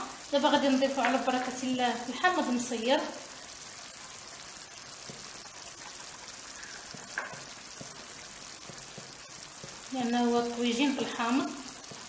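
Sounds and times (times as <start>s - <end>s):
food sizzling in a pot: 0.0s - 12.0s
small crackles: 3.3s - 10.0s.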